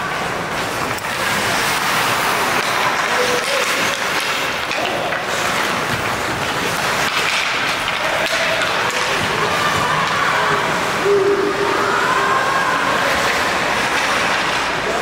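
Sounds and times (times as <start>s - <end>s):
arena noise: 0.0s - 15.0s
skates on ice: 0.0s - 15.0s
distant shouts: 8.0s - 13.5s.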